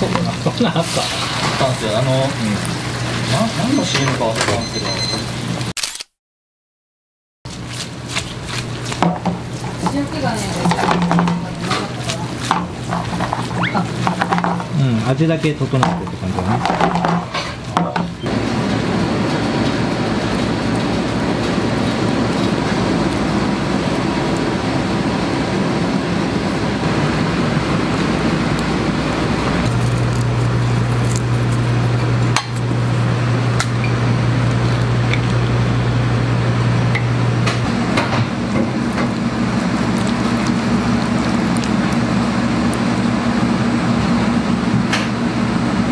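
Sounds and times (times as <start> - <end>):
loud kitchen hum: 0.0 - 6.1, 7.5 - 45.9
utensils clinking against plates: 3.6 - 5.3.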